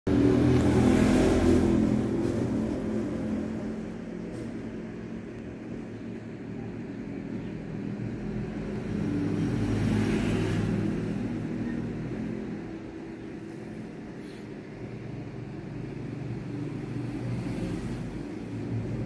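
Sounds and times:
vehicle engine running: 0:00.1 - 0:19.0.

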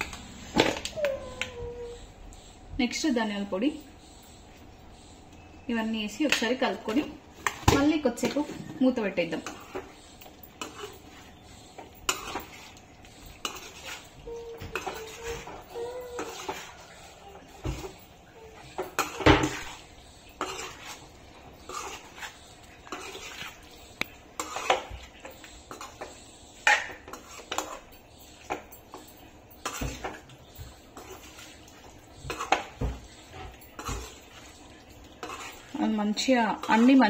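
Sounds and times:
spoon scraping cooking pan: 0:09.2 - 0:37.0.

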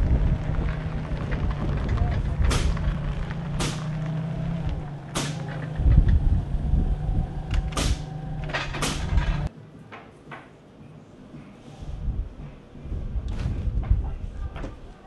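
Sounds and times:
sharp knocks: 0:02.4 - 0:04.1, 0:05.1 - 0:05.8, 0:07.5 - 0:09.5.

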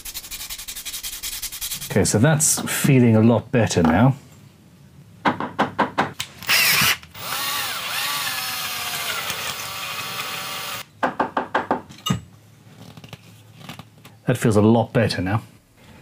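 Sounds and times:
cordless drill motor whine: 0:06.5 - 0:10.8.

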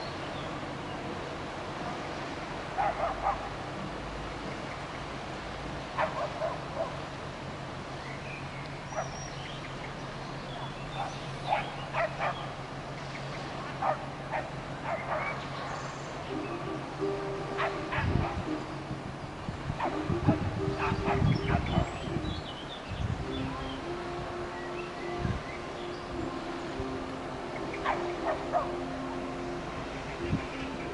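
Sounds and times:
background hiss: 0:00.0 - 0:30.9
dog barking: 0:02.8 - 0:03.5, 0:06.0 - 0:07.0, 0:11.0 - 0:12.5, 0:13.8 - 0:15.4, 0:27.8 - 0:28.8.

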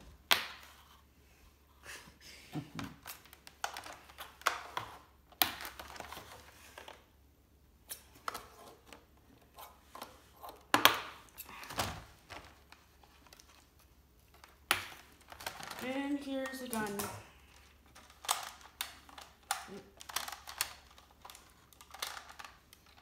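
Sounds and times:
packaging rustling and crinkling: 0:11.5 - 0:23.0.

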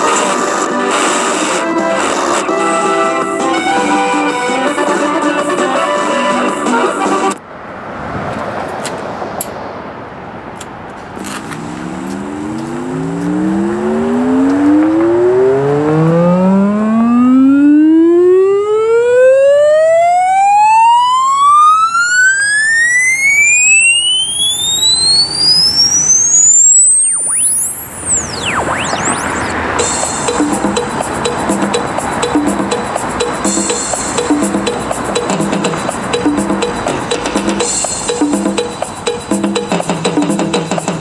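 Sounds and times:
music: 0:00.0 - 0:07.4, 0:28.8 - 0:41.0
rising frequency sweep tone: 0:11.6 - 0:29.8.

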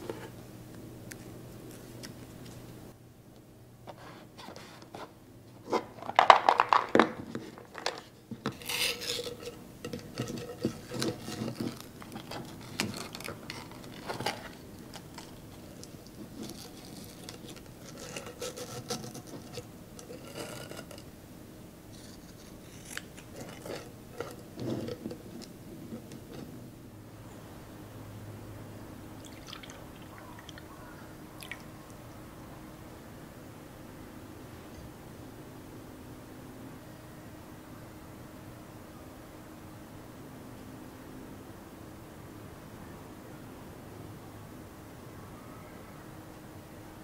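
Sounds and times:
ribbon rustling against plastic jar: 0:05.6 - 0:21.1, 0:21.9 - 0:26.5.

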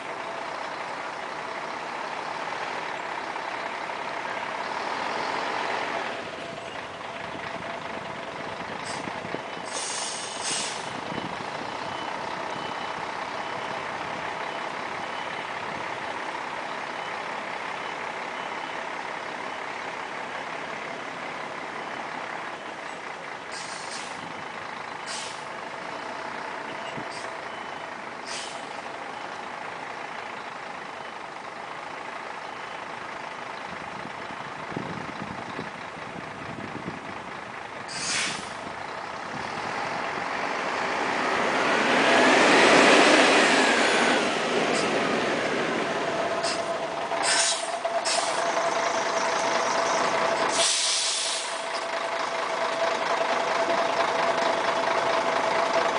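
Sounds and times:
bus diesel engine running: 0:00.0 - 0:55.9
air brake hisses: 0:09.7 - 0:10.9, 0:23.5 - 0:24.2, 0:25.1 - 0:25.4, 0:28.2 - 0:28.7, 0:37.9 - 0:38.6, 0:46.4 - 0:48.4, 0:50.5 - 0:51.7
reversing beeper: 0:11.7 - 0:15.6.

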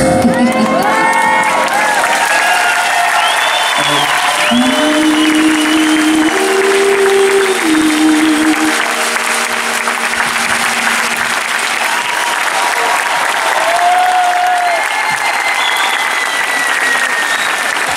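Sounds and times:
audience applauding: 0:00.0 - 0:17.9
long held musical notes: 0:03.7 - 0:12.6
short high tone: 0:03.8 - 0:11.4.

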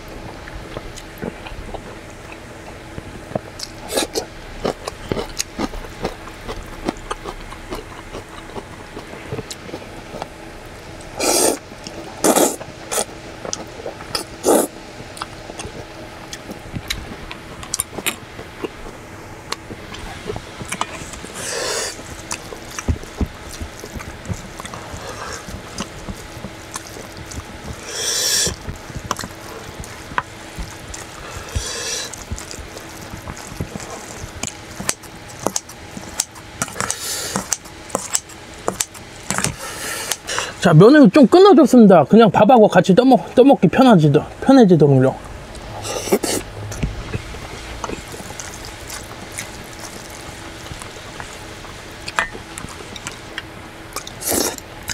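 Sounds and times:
faint steady hum: 0:00.0 - 0:54.9
chewing: 0:00.7 - 0:10.3, 0:11.0 - 0:40.5, 0:45.5 - 0:54.9
man slurping noodles: 0:11.2 - 0:11.6, 0:12.2 - 0:13.1, 0:14.2 - 0:14.7, 0:21.2 - 0:22.0, 0:27.8 - 0:28.6, 0:31.1 - 0:32.2, 0:45.8 - 0:50.2, 0:54.0 - 0:54.6.

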